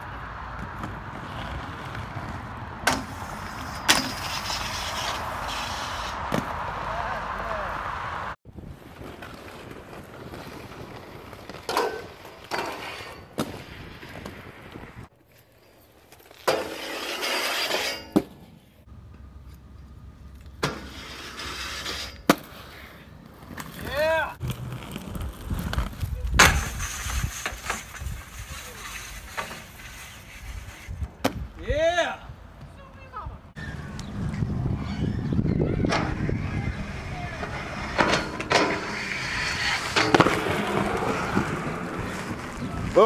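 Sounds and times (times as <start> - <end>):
skate grinding along metal rail: 0.0 - 19.6, 20.2 - 31.4, 33.6 - 43.0
inline skates rolling on pavement: 0.0 - 43.0
skate landing slap: 6.2 - 6.7, 22.2 - 22.6, 31.2 - 31.5
skate clacks: 37.4 - 43.0.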